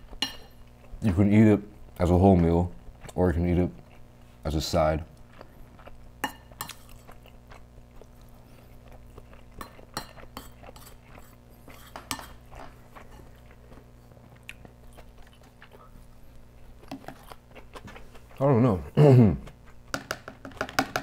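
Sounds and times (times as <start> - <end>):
chewing: 5.1 - 18.4.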